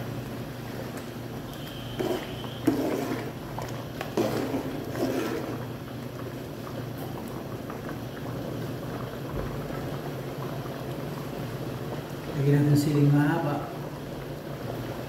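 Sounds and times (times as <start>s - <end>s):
soup bubbling: 0.0s - 15.0s
spoon scraping metal pot: 1.8s - 3.4s, 4.1s - 5.6s.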